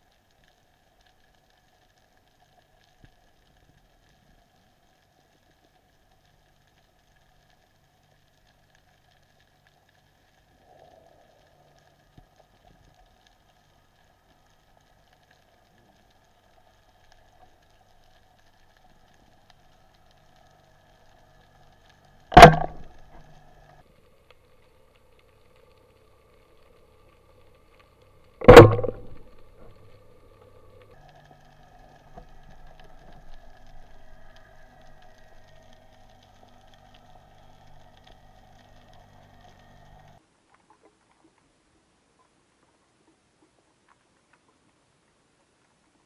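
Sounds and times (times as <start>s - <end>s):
underwater speargun shots: 22.3s - 22.9s, 28.4s - 29.2s.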